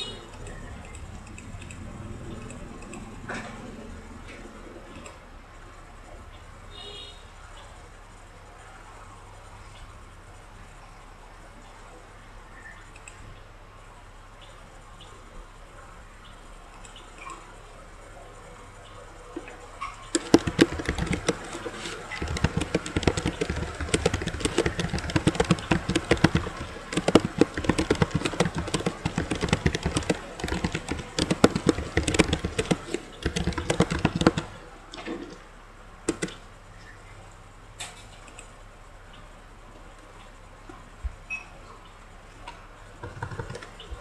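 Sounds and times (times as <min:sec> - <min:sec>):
fast typing on keyboard: 0:20.1 - 0:34.6, 0:36.1 - 0:36.4, 0:43.0 - 0:43.8.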